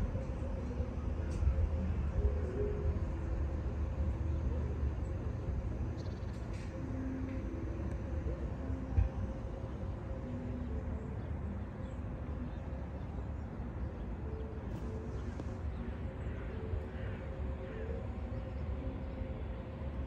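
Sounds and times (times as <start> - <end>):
faint hum: 0.0 - 20.0
faint bird chirps: 6.0 - 6.4.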